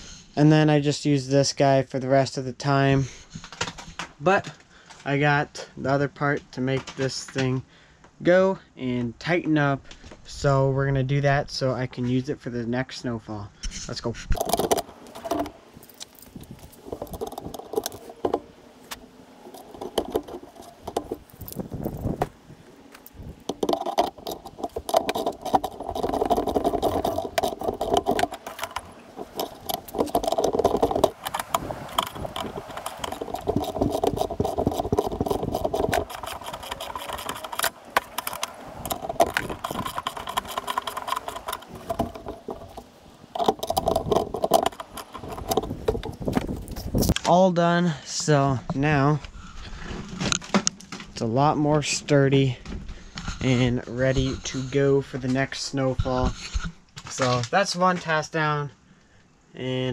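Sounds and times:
small metal clicks and rattles: 0:14.3 - 0:47.2
rubbing and rustling: 0:14.4 - 0:47.2.

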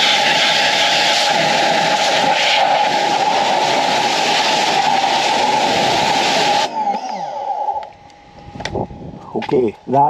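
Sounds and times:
pressure washer spray hiss: 0:00.0 - 0:06.7
pressure washer whine: 0:00.0 - 0:09.2.

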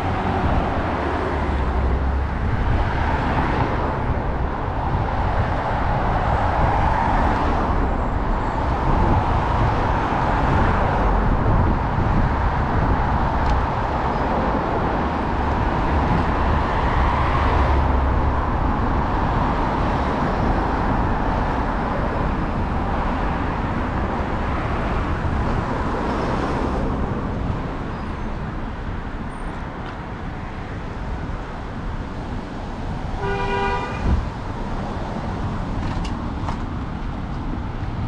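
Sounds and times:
road traffic rushing: 0:00.0 - 0:38.0
car horn: 0:33.1 - 0:34.3.

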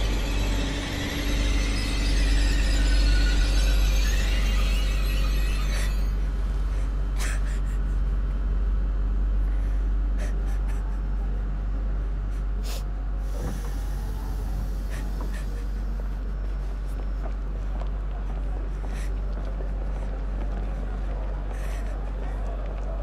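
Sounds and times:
faint sustained tones: 0:00.0 - 0:06.8
deep low rumbling drone: 0:00.0 - 0:23.0.

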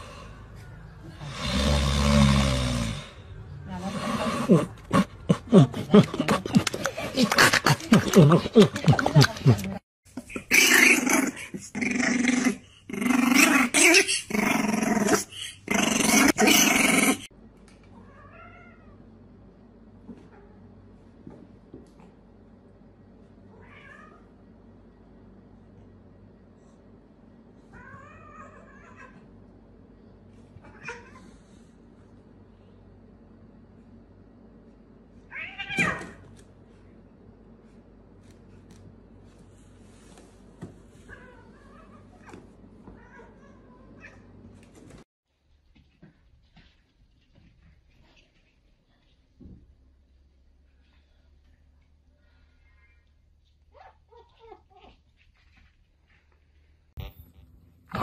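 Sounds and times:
puppy growling barks: 0:10.3 - 0:17.3.

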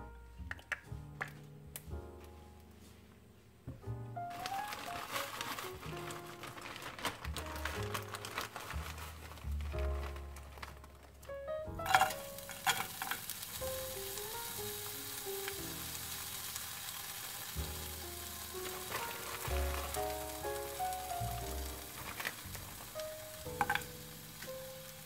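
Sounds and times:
onions sizzling in hot oil: 0:11.7 - 0:25.0
clicks hitting pan: 0:11.8 - 0:13.4, 0:23.6 - 0:24.0.

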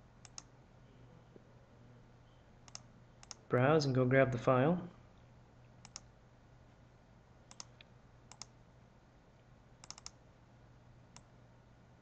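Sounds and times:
faint low hum: 0:00.0 - 0:12.0
computer mouse clicks: 0:00.2 - 0:00.5, 0:02.6 - 0:03.4, 0:05.8 - 0:06.1, 0:07.5 - 0:08.6, 0:09.8 - 0:10.2, 0:11.1 - 0:11.3.

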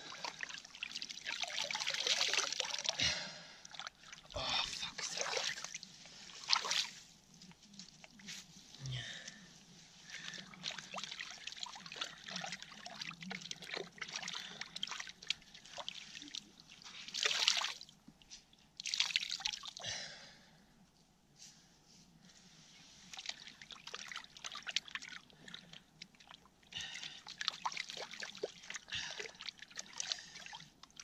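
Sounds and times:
water splashing and trickling: 0:00.0 - 0:07.1, 0:10.0 - 0:18.0, 0:18.8 - 0:19.8, 0:23.0 - 0:31.0.

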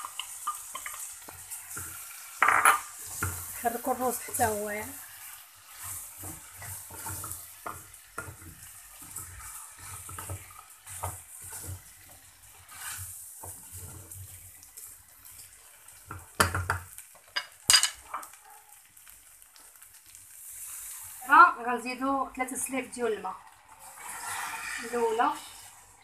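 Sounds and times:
rice sizzling: 0:00.0 - 0:26.0
wooden spoon scraping metal pan: 0:05.7 - 0:14.3, 0:23.7 - 0:25.7.

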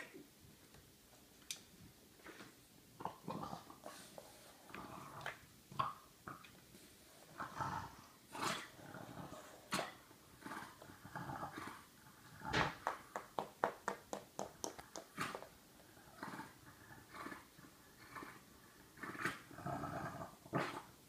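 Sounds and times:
dog growling: 0:07.3 - 0:12.6, 0:15.2 - 0:20.9.

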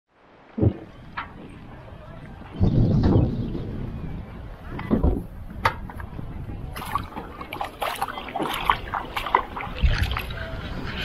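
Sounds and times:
small water splashes: 0:06.6 - 0:10.7
hand swishing lake water: 0:06.7 - 0:10.6.

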